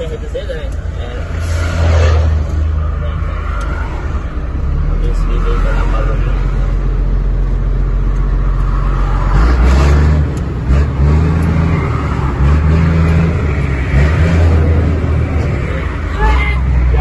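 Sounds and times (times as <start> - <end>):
truck diesel engine accelerating: 0.0 - 17.0.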